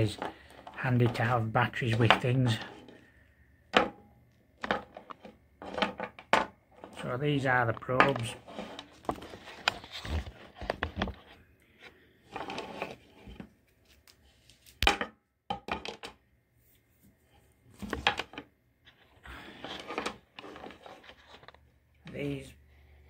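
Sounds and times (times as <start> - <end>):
rustling of handling: 4.6 - 14.8, 16.6 - 22.4.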